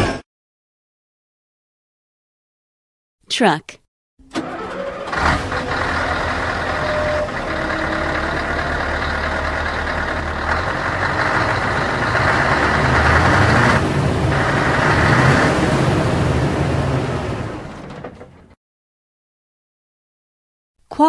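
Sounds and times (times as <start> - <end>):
heavy truck engine running: 4.2 - 18.6.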